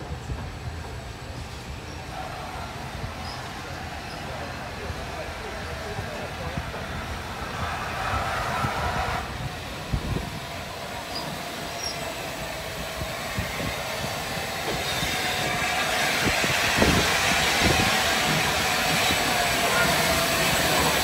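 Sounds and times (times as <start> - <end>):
steam locomotive rolling slowly: 0.0 - 21.0
train wheel squeal: 1.4 - 4.5, 7.4 - 9.4, 11.0 - 21.0.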